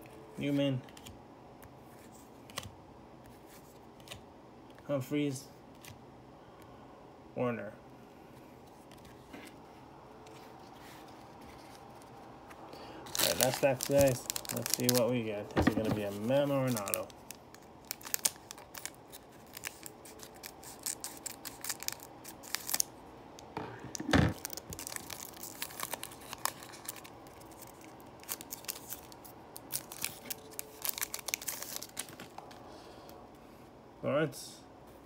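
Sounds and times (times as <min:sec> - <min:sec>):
foil wrapper crinkling and tearing: 0:13.0 - 0:22.9, 0:24.3 - 0:32.4.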